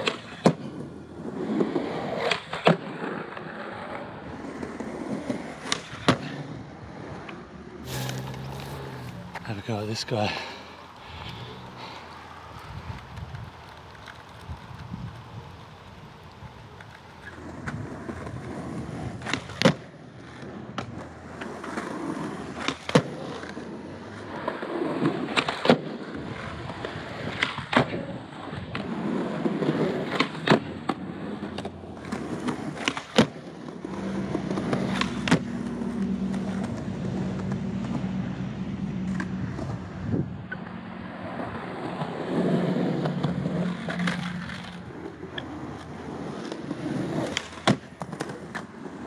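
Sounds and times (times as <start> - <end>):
skateboard tail popping and landing: 0.0 - 9.5, 12.2 - 38.0, 40.5 - 49.0
skateboard wheels rolling on concrete: 0.0 - 49.0.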